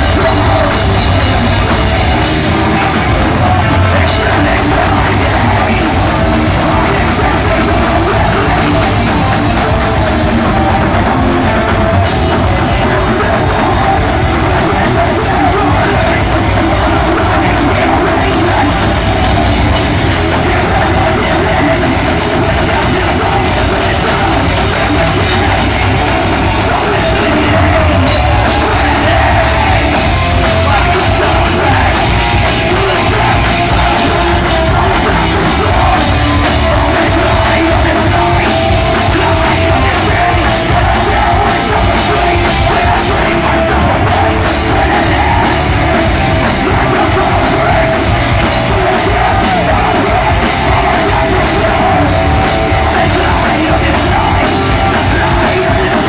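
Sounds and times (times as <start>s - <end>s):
heavy metal band playing: 0.0s - 56.0s.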